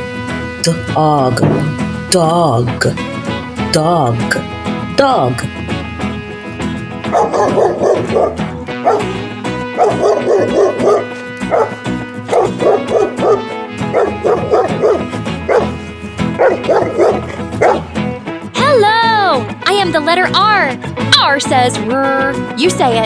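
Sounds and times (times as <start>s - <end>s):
background music: 0.0s - 23.0s
dog barking: 7.0s - 17.9s.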